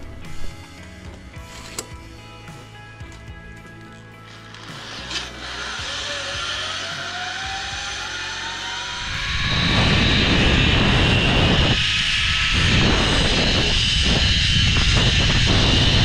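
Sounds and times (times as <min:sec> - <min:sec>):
zip-line pulleys whining on cable: 0:04.2 - 0:16.0
wind rushing over camera: 0:08.9 - 0:16.0.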